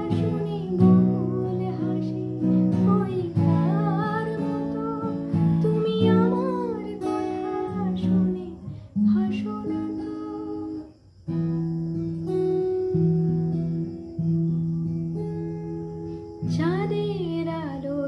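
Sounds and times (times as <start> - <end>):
strummed acoustic guitar: 0.0 - 10.6
woman singing: 0.0 - 10.9, 16.4 - 18.0.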